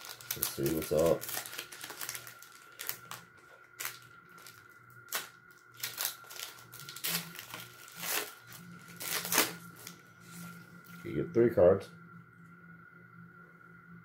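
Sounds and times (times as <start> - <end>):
foil wrapper tearing and crinkling: 0.0 - 10.0.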